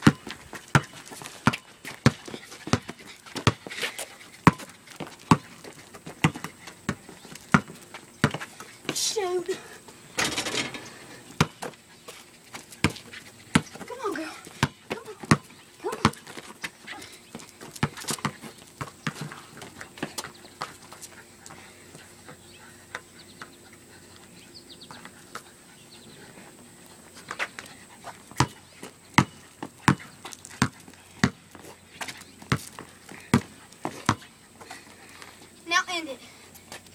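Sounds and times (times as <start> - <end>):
basketball bouncing on asphalt: 0.0 - 9.0, 11.3 - 21.1, 28.2 - 34.3.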